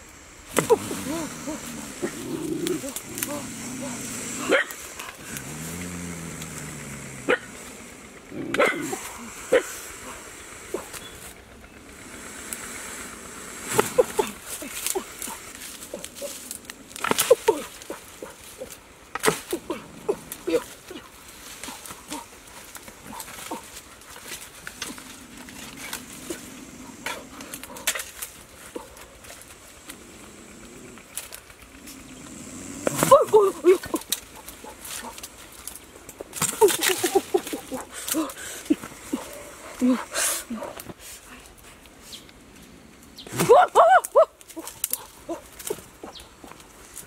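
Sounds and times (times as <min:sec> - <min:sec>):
twigs crackling underfoot: 0:00.5 - 0:12.6, 0:13.8 - 0:47.0
dogs barking: 0:04.4 - 0:04.9, 0:07.2 - 0:07.5, 0:08.5 - 0:09.8.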